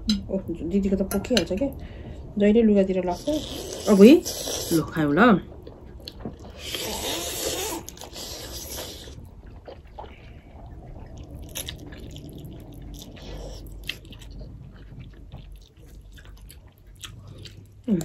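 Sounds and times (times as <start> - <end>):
chewing with mouth clicks: 5.5 - 18.0
loud noodle slurp: 6.6 - 9.2.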